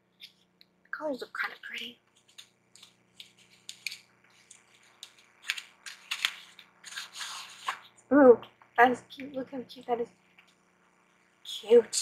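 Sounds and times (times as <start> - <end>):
cardboard rustling and scraping: 4.4 - 7.9.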